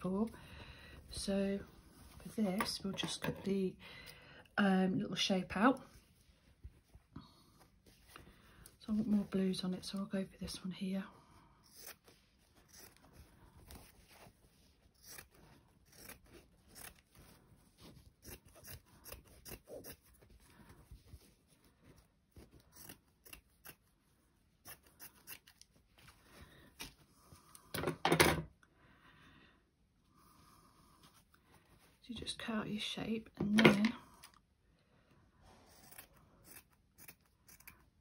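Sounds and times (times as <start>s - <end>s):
scissors snipping fabric: 11.6s - 14.2s, 14.9s - 17.2s, 18.0s - 20.2s, 22.3s - 23.9s, 24.6s - 25.7s, 35.7s - 38.0s.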